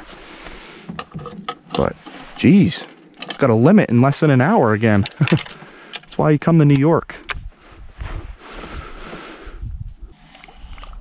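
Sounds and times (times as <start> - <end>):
reel winding hiss and water: 10.1 - 11.0.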